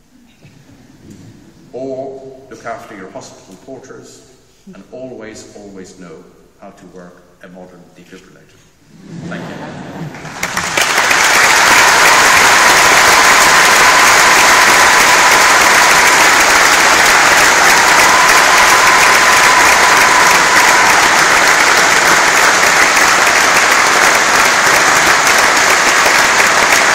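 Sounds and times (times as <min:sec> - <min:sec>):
audience applause: 0:09.6 - 0:26.9.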